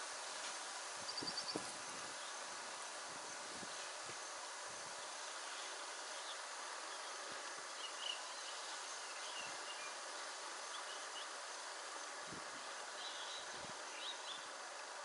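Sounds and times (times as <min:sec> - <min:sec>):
insects buzzing: 0:00.0 - 0:15.0
faint bird chirps: 0:01.0 - 0:02.4, 0:12.9 - 0:14.6.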